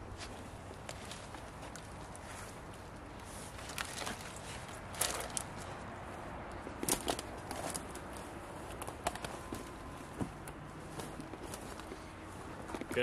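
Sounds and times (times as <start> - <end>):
twigs snapping: 3.6 - 5.7.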